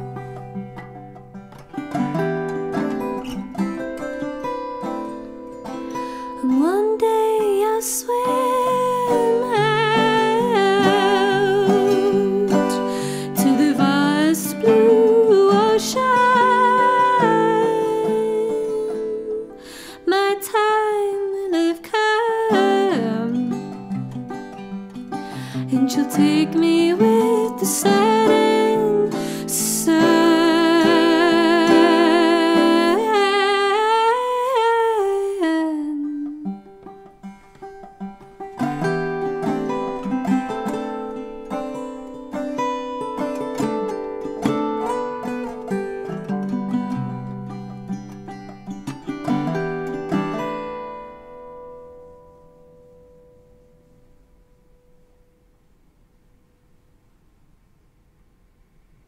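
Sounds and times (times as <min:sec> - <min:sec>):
mandolin: 0:00.0 - 0:55.4
plucked guitar: 0:00.0 - 0:55.5
singer breathing in: 0:05.9 - 0:06.4, 0:12.9 - 0:13.3, 0:19.6 - 0:20.0, 0:25.2 - 0:25.7
woman singing wordless notes: 0:06.4 - 0:24.0, 0:25.4 - 0:36.7.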